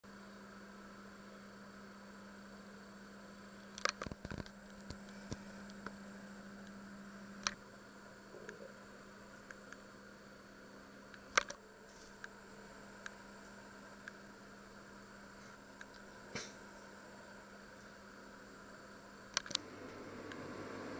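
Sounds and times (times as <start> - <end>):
steady low hum: 0.1 - 20.9
small clicks and knocks: 3.7 - 6.0.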